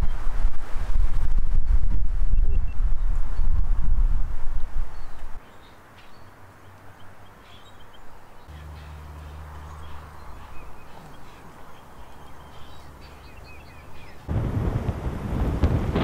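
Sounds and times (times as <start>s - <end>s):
wind buffeting microphone: 0.0s - 5.4s, 9.7s - 16.0s
wind hiss: 0.0s - 6.6s, 9.0s - 16.0s
small birds chirping: 4.9s - 14.3s.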